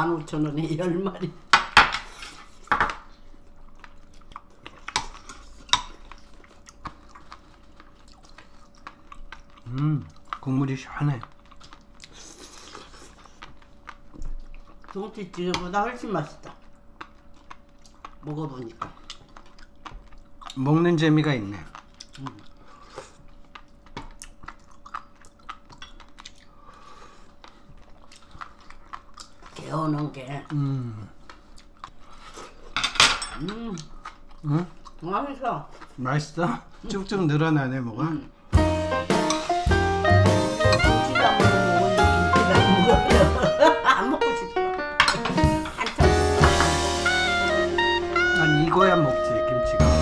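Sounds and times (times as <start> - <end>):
chewing: 2.1 - 32.8, 33.4 - 37.2
metal utensils clinking on bowls: 32.8 - 33.5, 45.0 - 46.0.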